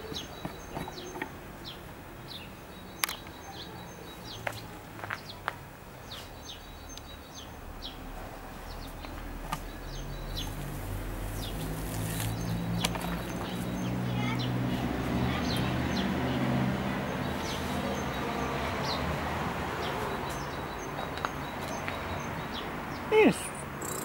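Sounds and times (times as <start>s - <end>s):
small birds chirping: 0.0s - 24.0s
sharp clicks: 3.0s - 3.3s.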